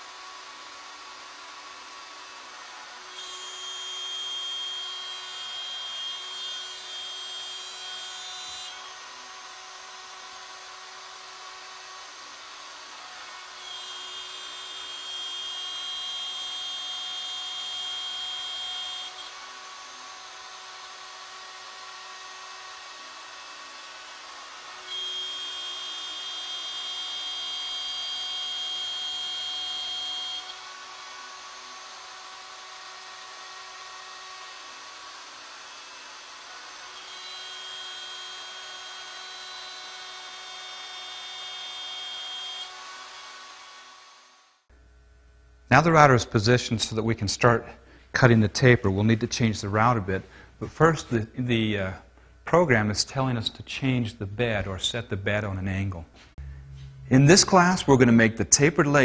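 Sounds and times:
router milling wood: 0.0 - 44.6.

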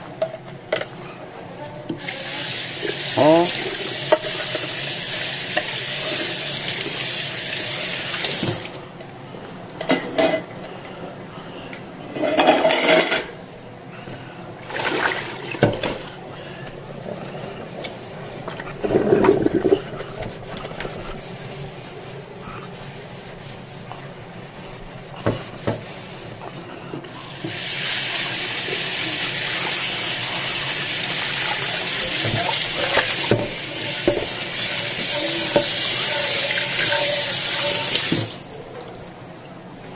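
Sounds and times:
sponge scrubbing a frying pan: 2.1 - 8.7, 17.0 - 38.4.

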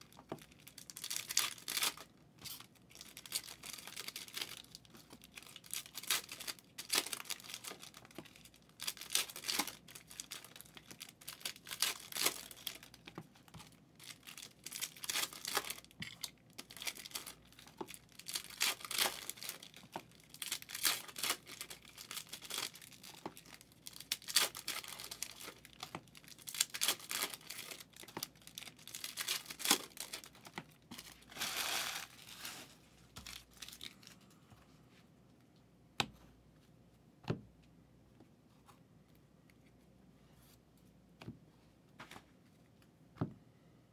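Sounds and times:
card pack wrappers tearing: 0.6 - 13.0, 14.0 - 34.0
cards shuffling: 29.1 - 33.8.

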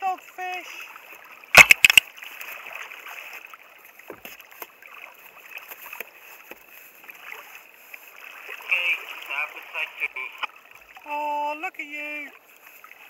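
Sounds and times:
water lapping against kayak hull: 0.0 - 13.0
sharp knocks: 1.6 - 2.0.

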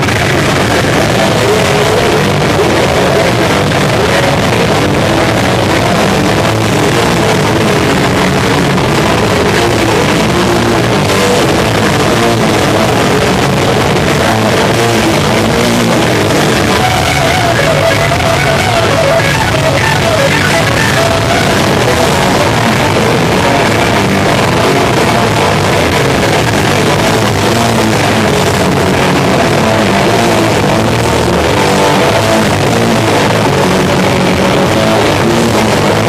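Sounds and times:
punk band playing live: 0.0 - 36.0.

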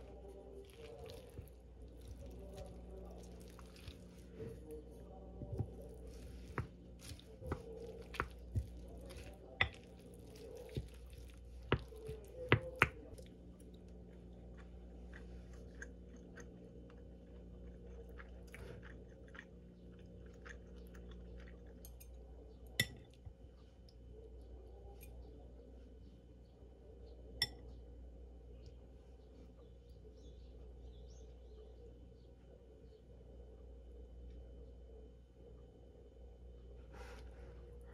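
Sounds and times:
soft chewing: 0.0 - 37.9.

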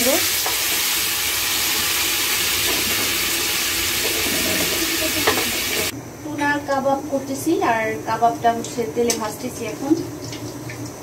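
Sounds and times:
hot oil sizzling in a wok: 0.0 - 5.9.

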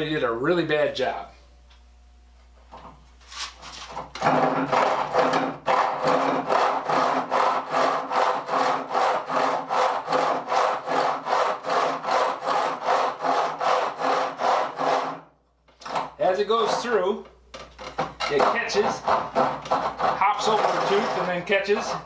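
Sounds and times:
handsaw cutting wood: 3.4 - 17.1, 18.2 - 22.0.

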